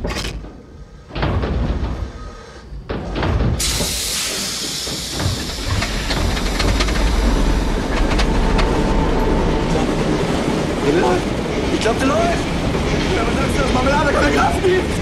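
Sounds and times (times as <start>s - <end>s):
clattering knocks: 0.0s - 10.6s
diesel engine rumble: 2.9s - 11.8s
loud hiss: 3.6s - 7.9s.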